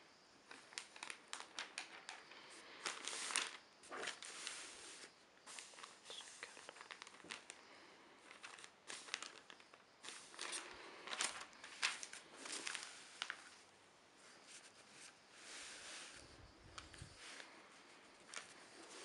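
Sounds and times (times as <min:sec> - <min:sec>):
newspaper rustling and crinkling: 0:00.4 - 0:13.7, 0:14.3 - 0:19.0.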